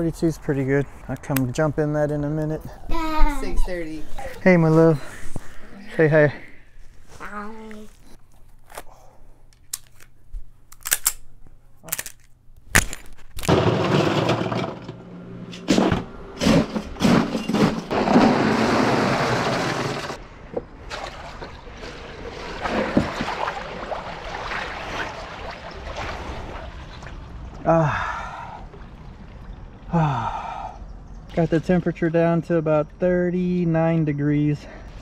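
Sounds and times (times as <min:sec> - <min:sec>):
water and ice sloshing: 0:20.8 - 0:29.9.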